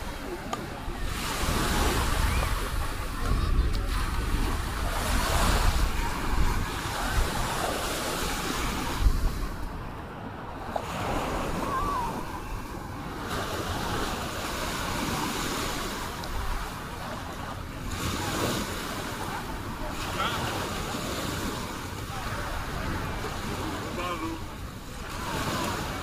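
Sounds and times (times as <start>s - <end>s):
wind buffeting microphone: 0.0s - 14.2s
small waves breaking on shore: 0.0s - 26.0s.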